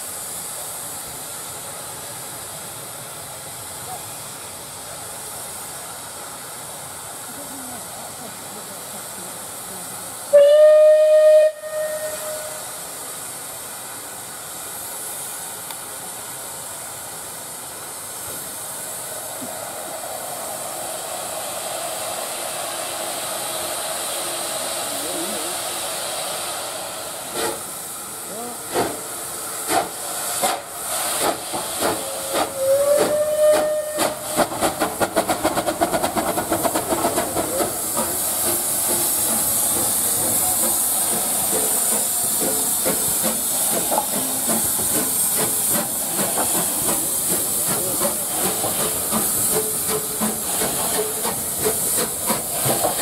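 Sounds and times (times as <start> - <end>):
steam hissing: 0.0 - 53.0
steam locomotive whistle: 10.3 - 12.8, 32.0 - 34.4.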